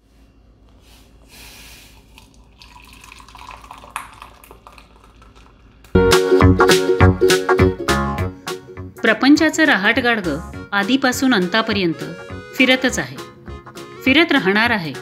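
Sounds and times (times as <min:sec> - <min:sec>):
tea pouring into cup: 0:01.9 - 0:05.9
loud music: 0:06.0 - 0:14.2.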